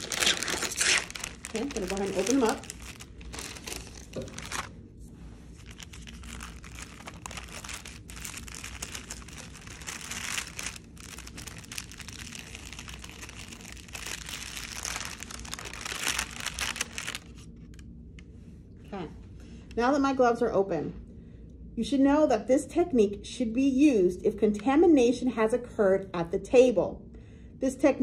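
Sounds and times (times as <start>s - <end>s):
paper wrapper rustling and crinkling: 0.0s - 4.7s, 5.5s - 17.8s.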